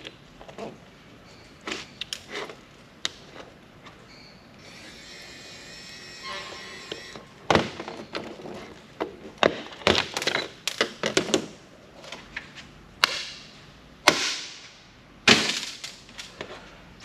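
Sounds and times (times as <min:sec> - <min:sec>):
parts clattering knocks and clicks: 0:07.5 - 0:13.4.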